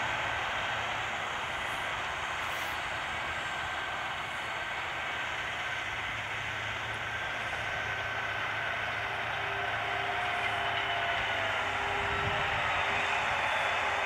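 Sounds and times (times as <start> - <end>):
tractor diesel engine running: 0.0 - 14.0
whining tones: 0.0 - 14.0.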